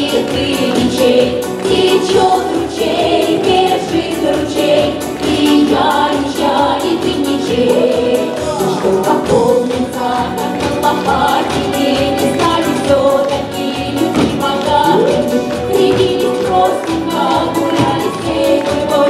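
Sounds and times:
accordion: 0:00.0 - 0:19.0
group singing folk song: 0:00.0 - 0:19.0
steady beat: 0:00.4 - 0:19.0.

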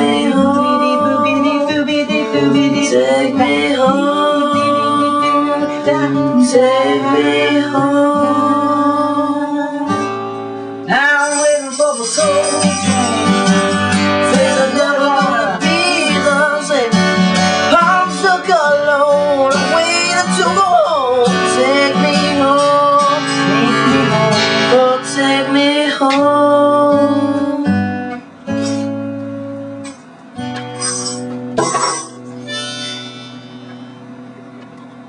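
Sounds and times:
person singing wordlessly: 0:00.0 - 0:09.9, 0:10.9 - 0:17.1, 0:17.7 - 0:27.7
acoustic guitar strumming: 0:00.0 - 0:35.0.

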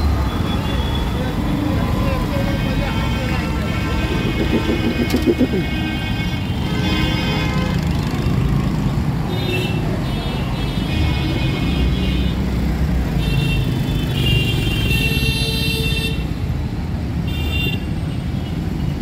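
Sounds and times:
traffic engines running: 0:00.0 - 0:19.0
vehicle horns honking: 0:02.5 - 0:07.9.

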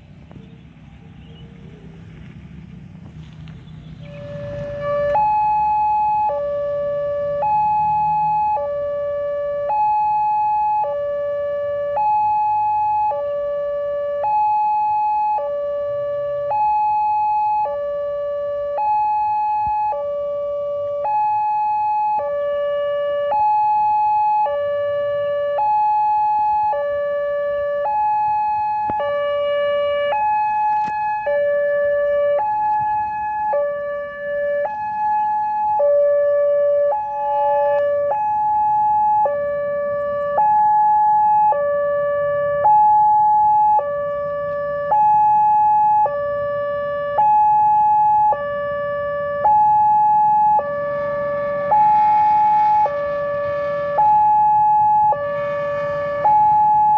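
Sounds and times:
level crossing two-tone alarm: 0:04.1 - 0:56.9.

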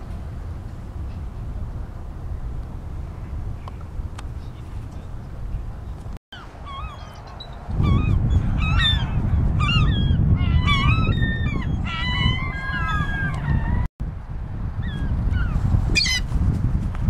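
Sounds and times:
wind rumble on microphone: 0:00.0 - 0:17.0
gulls and eagles calling: 0:06.4 - 0:13.9.

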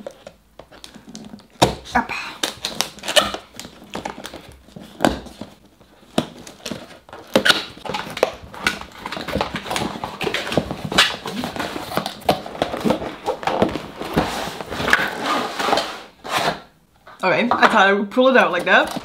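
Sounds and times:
cardboard box being opened: 0:02.5 - 0:16.7.

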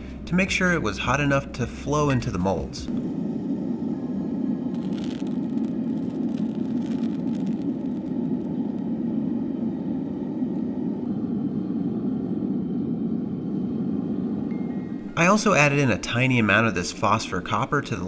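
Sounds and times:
furnace burner roaring: 0:00.0 - 0:18.0
faint crackles: 0:02.2 - 0:11.2.

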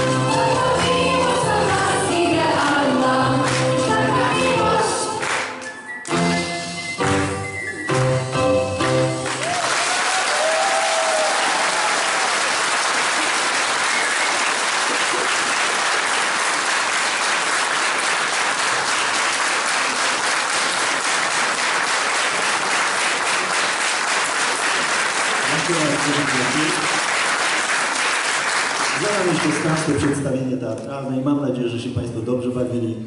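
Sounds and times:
music: 0:00.0 - 0:09.6
audience applauding: 0:09.2 - 0:30.4.

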